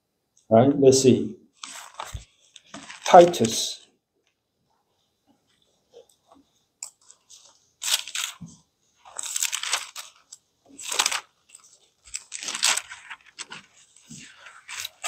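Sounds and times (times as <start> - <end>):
book pages turning: 1.6 - 3.8, 6.0 - 15.0.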